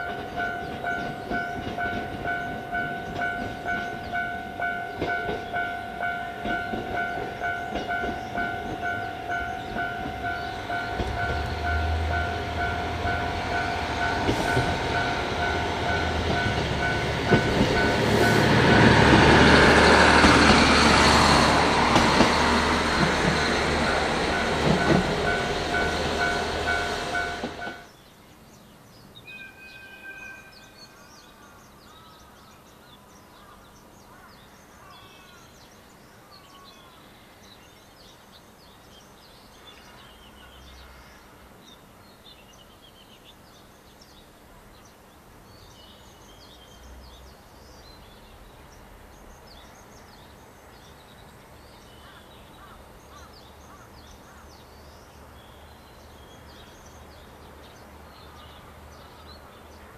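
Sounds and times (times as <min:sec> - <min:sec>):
birds chirping and calling: 0:00.0 - 0:20.5.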